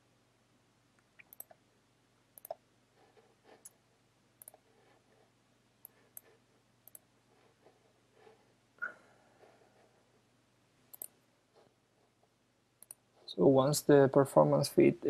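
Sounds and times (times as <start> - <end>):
faint low hum: 0.0 - 15.0
computer mouse clicks: 1.2 - 1.6, 2.4 - 2.6, 4.4 - 4.6, 5.8 - 7.1, 10.9 - 11.2, 12.8 - 13.0.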